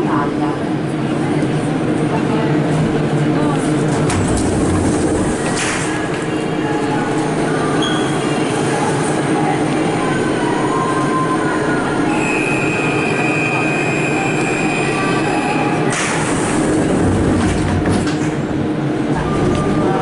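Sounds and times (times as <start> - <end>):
train rumbling pulling away: 2.9 - 20.0.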